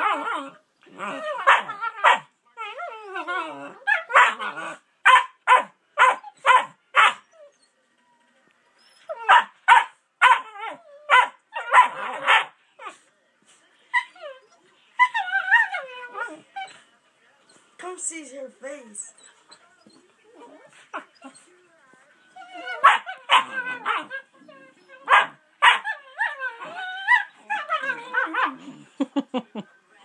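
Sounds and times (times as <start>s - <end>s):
puppies whining and grumbling: 0.0s - 4.8s, 7.2s - 9.4s, 10.3s - 13.0s, 13.9s - 16.9s, 19.0s - 29.0s
puppies barking: 1.0s - 2.3s, 3.8s - 7.2s, 9.1s - 12.6s, 22.4s - 24.3s, 24.9s - 28.6s.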